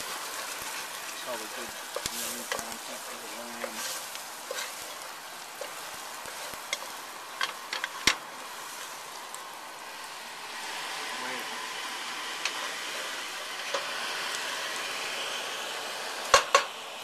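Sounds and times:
wooden spoon scraping a pot: 0.0 - 9.1, 12.4 - 13.9
onions sizzling in a pot: 0.0 - 17.0.

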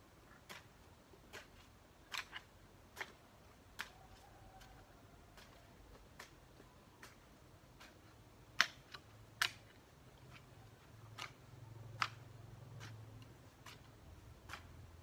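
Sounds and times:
hoe chopping into wet soil: 0.4 - 10.5.

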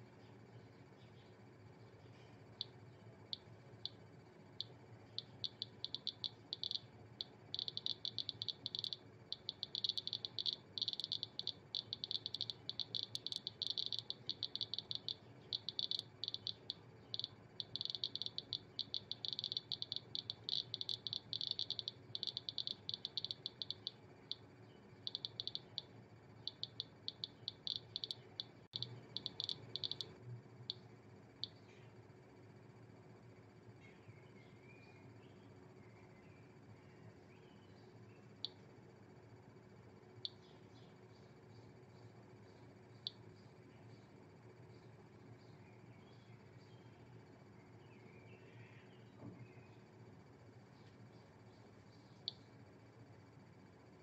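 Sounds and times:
geiger counter clicking: 4.6 - 24.4, 25.0 - 30.8.

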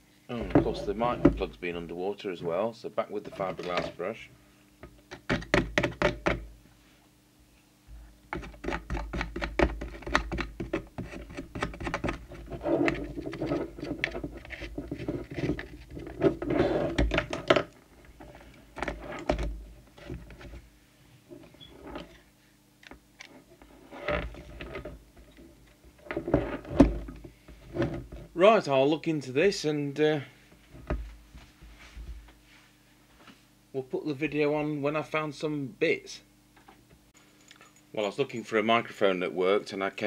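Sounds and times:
faint low hum: 0.0 - 40.0
scratching and clicking handling noises: 8.3 - 20.6.

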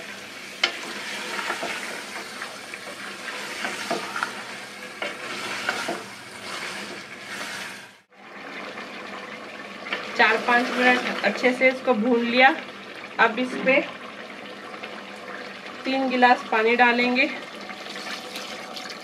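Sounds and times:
meat sizzling in a pot: 0.0 - 19.0
wooden spoon scraping a pot: 0.6 - 8.1.

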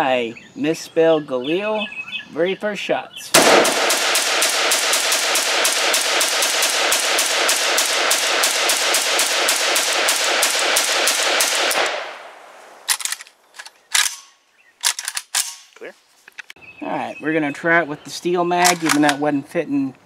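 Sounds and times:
rapid rifle fire: 3.4 - 12.3
sharp clicks: 12.8 - 16.6, 18.6 - 19.2.

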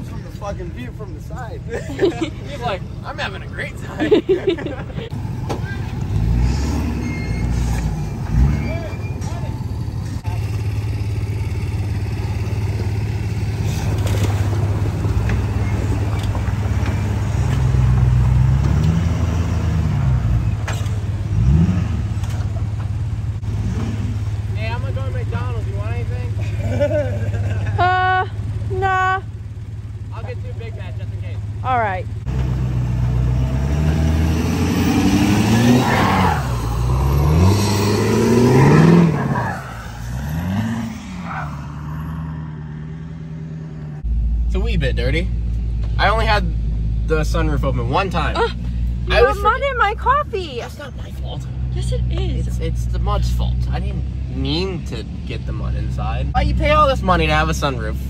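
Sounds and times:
pickup truck engine revving: 4.2 - 28.6, 32.2 - 50.6.

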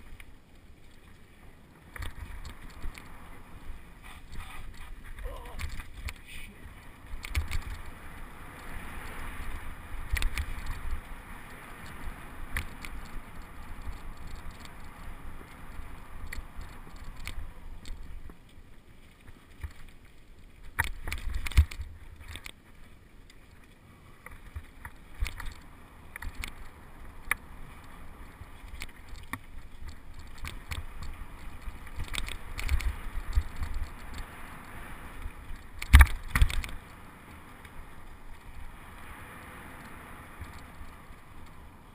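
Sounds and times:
bike tyres rumbling on dirt: 0.0 - 41.9
bike clacks and rattles: 35.5 - 36.9.

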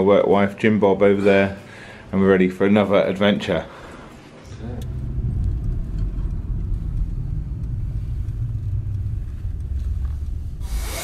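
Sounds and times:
car road rumble from inside: 4.5 - 10.7.

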